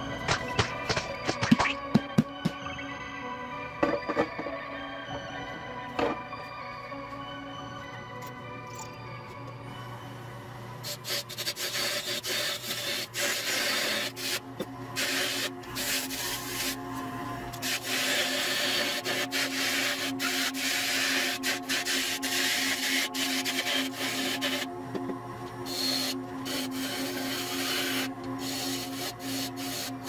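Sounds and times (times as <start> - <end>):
lathe tool scraping wood: 10.9 - 14.4, 15.0 - 16.8, 17.6 - 24.7, 25.7 - 30.0
lathe motor humming: 11.4 - 30.0.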